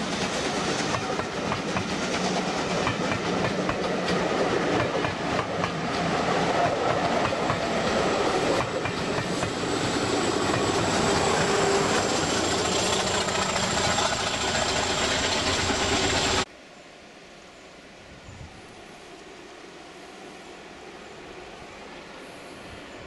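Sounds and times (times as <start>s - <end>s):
train coaches rumbling and clattering: 0.0s - 16.5s.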